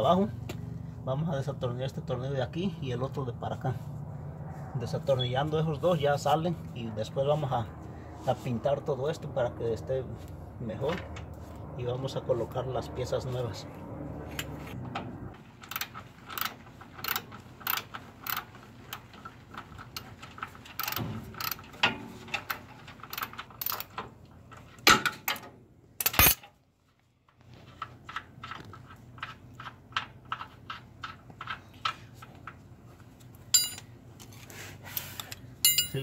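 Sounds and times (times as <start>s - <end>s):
ratchet wrench clicking: 15.6s - 18.5s, 20.8s - 21.6s.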